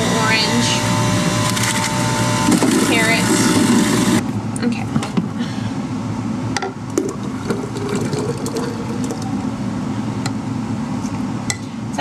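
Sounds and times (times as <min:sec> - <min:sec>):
juicer motor whirring: 0:00.0 - 0:04.3.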